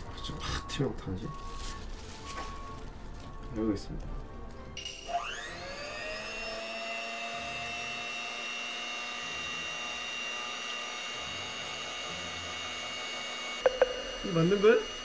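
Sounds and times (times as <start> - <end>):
electric hand mixer whirring: 4.8 - 15.0.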